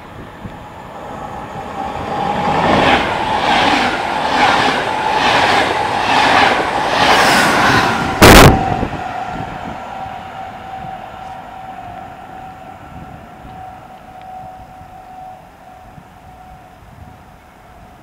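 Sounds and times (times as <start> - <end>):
train rushing past on rails: 0.0 - 18.0
train horn blast: 8.1 - 18.0.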